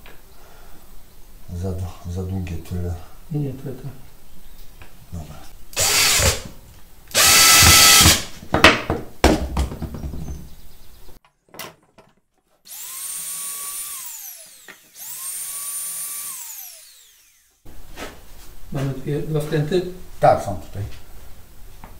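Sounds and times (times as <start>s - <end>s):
cordless drill drilling into wood: 5.8s - 8.3s, 12.7s - 17.6s
power tool motor whining: 5.8s - 8.3s, 12.7s - 17.7s.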